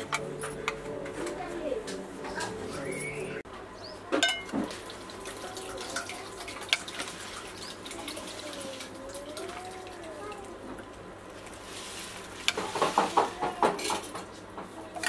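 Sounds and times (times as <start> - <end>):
metal spoon clinking on pot: 4.2 - 4.5.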